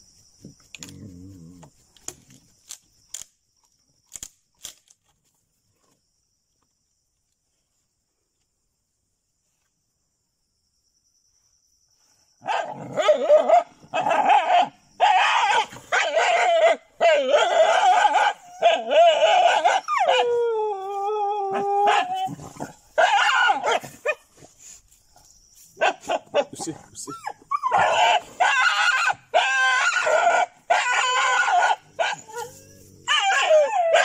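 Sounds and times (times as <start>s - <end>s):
dog barking and yelping: 12.4s - 24.5s, 25.8s - 34.0s
dog howling: 14.2s - 22.4s, 27.3s - 34.0s.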